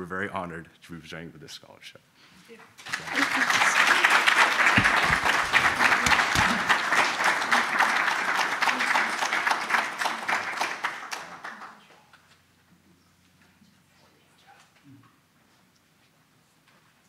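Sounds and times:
audience applauding: 0:02.8 - 0:11.9.

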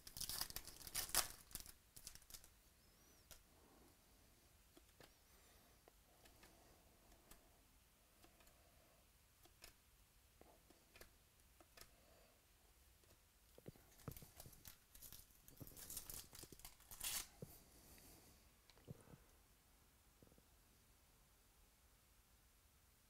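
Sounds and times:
foil wrapper crinkling and tearing: 0:00.0 - 0:02.5, 0:13.9 - 0:17.3.

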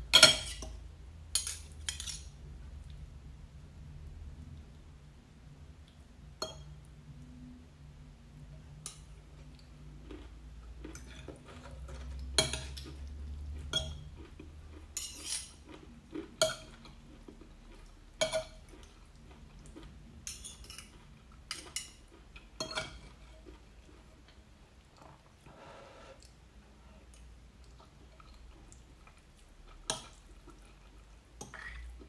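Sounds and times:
cutlery clinking on ceramic plate: 0:01.4 - 0:02.3, 0:22.6 - 0:23.1.

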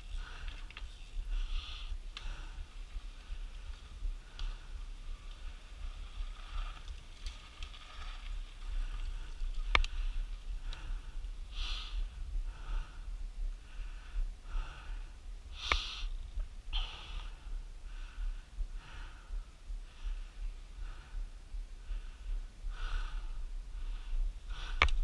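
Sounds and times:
person breathing hard: 0:00.0 - 0:06.8, 0:08.6 - 0:25.0.

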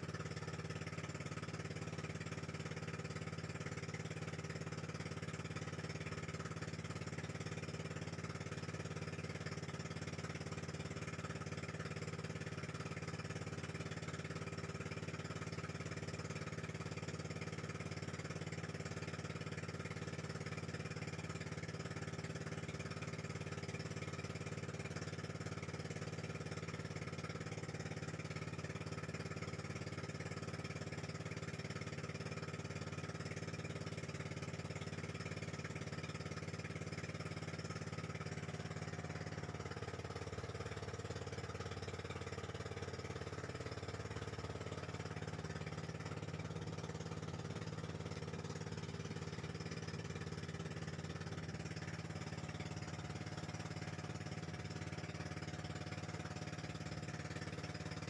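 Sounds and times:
boat engine droning: 0:33.9 - 0:58.0.

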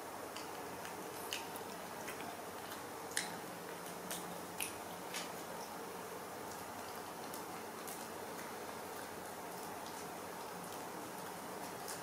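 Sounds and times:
faint steady hum: 0:00.0 - 0:12.0
monkey mouth clicks and smacks: 0:00.3 - 0:05.3.

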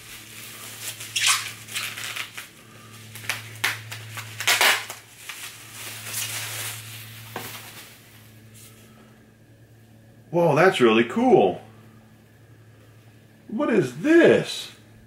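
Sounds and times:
bubble wrap crinkling: 0:00.0 - 0:08.8.

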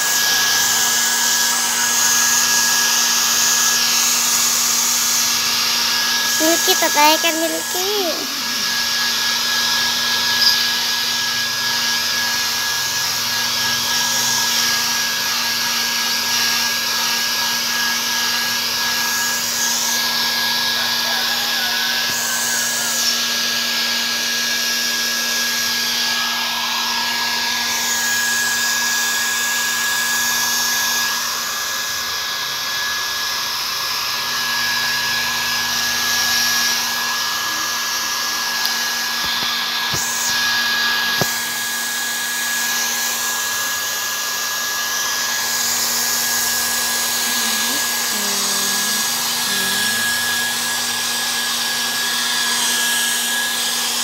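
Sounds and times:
hair dryer blowing: 0:00.0 - 0:54.0.

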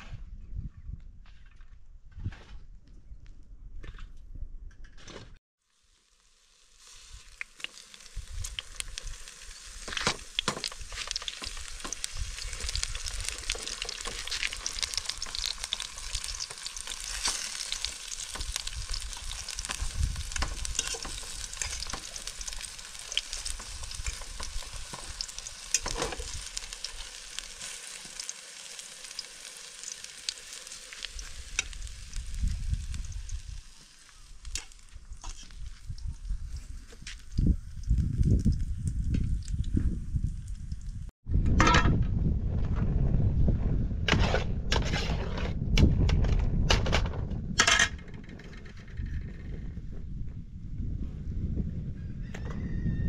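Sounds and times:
eggplant sizzling in hot oil: 0:05.6 - 0:41.1
low rumble: 0:37.8 - 0:52.1.

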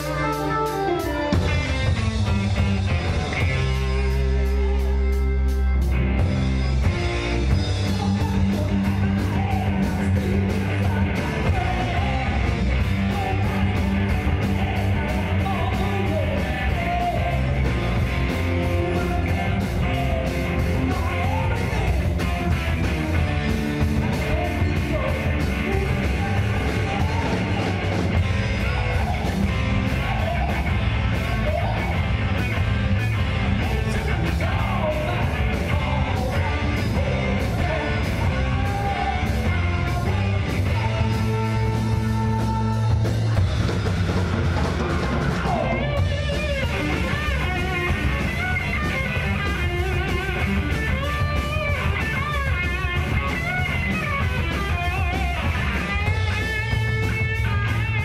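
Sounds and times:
driving drum beat: 0:00.0 - 0:58.0
live rock band playing: 0:00.0 - 0:58.0
man singing: 0:07.4 - 0:43.4, 0:45.2 - 0:50.3.

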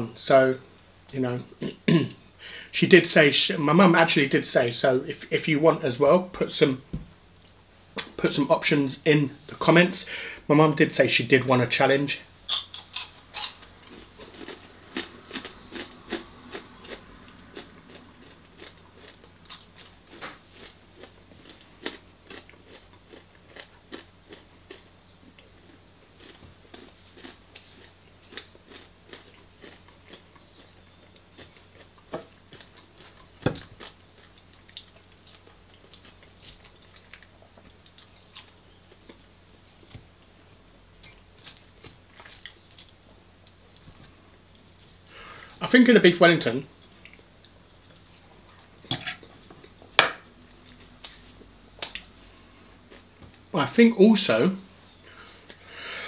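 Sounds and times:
chewing crunchy chips: 0:12.5 - 0:40.0, 0:41.0 - 0:43.8.

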